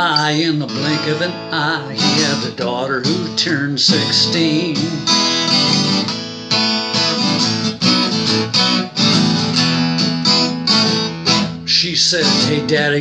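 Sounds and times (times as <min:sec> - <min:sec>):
acoustic guitar strumming: 0:00.0 - 0:13.0.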